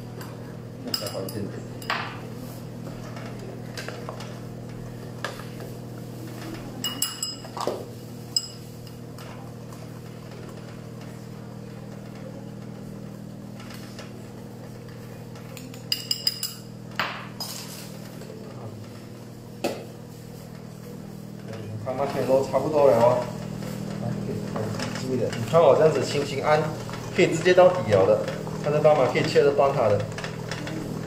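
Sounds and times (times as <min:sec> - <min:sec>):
utensil clinking on glass bowl: 0:00.9 - 0:02.0, 0:06.8 - 0:07.6, 0:08.4 - 0:08.6, 0:15.6 - 0:16.7.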